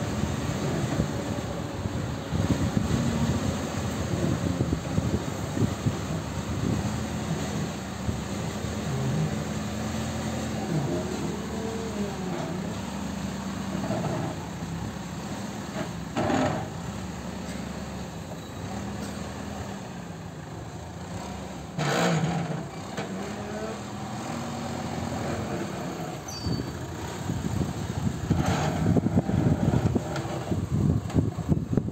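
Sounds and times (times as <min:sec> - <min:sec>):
rough gusty noise: 0:00.0 - 0:17.8, 0:24.2 - 0:31.9
diesel engine running: 0:00.0 - 0:31.9.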